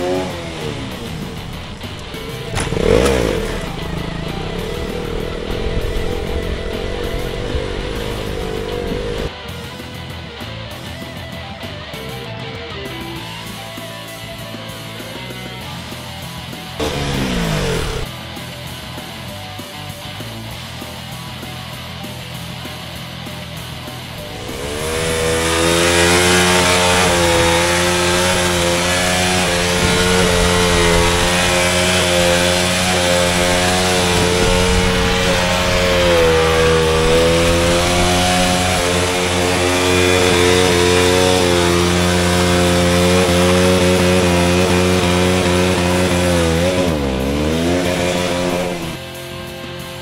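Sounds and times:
motorcycle engine revving: 0:00.0 - 0:09.4, 0:15.2 - 0:18.1, 0:23.9 - 0:50.0.

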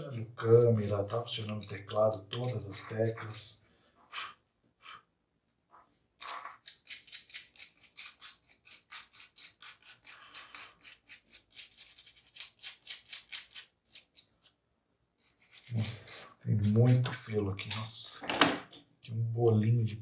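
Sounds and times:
rapid scrubbing strokes: 0:00.0 - 0:03.5.

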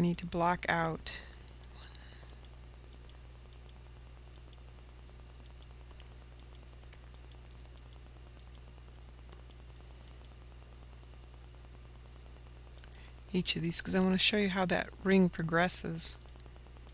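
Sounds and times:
low electrical hum: 0:00.0 - 0:16.9
computer mouse clicking: 0:05.4 - 0:08.7, 0:09.3 - 0:10.4.

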